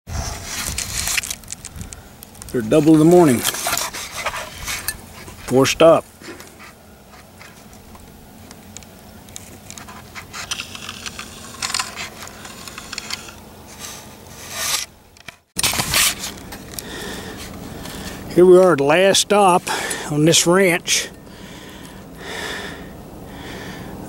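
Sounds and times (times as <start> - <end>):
scraping and rustling: 0.1 - 8.1, 9.3 - 18.3.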